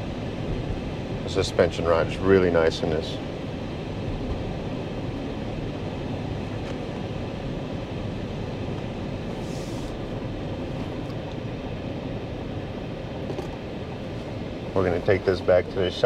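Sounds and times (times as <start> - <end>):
car engine and road noise: 0.0 - 16.0
brief hiss: 9.3 - 10.0.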